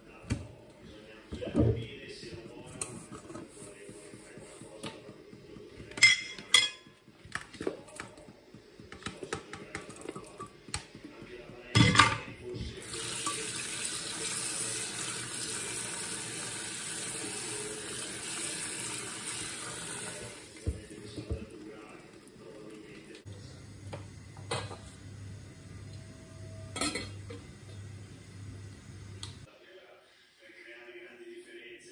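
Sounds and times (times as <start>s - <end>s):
tap water running into pot: 12.7s - 26.0s.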